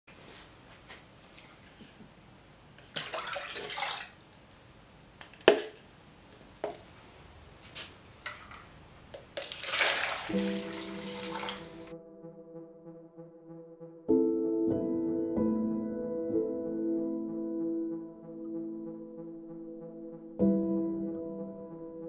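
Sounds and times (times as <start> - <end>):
liquid pouring into tub: 2.8 - 4.2, 9.3 - 12.0
plastic tubs handled: 5.2 - 6.9, 7.7 - 11.6.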